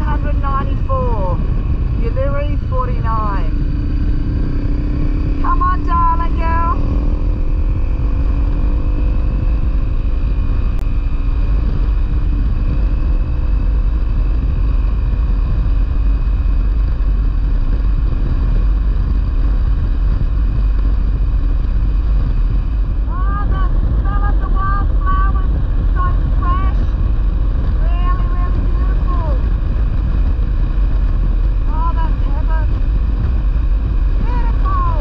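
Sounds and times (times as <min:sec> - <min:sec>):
motorcycle engine running: 0:00.0 - 0:35.0
wind rush on microphone: 0:00.0 - 0:35.0.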